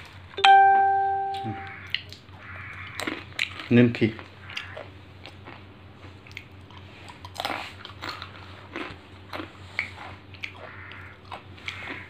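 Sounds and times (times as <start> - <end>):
person crunching hard snack: 2.9 - 12.0.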